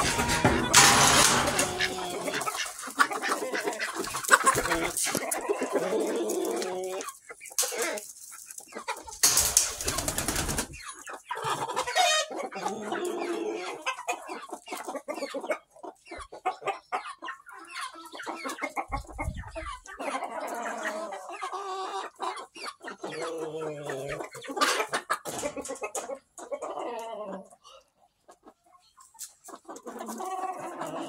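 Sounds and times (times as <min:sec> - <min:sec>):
birds scratching in litter: 0:00.0 - 0:12.3
hens and roosters clucking: 0:00.0 - 0:31.0.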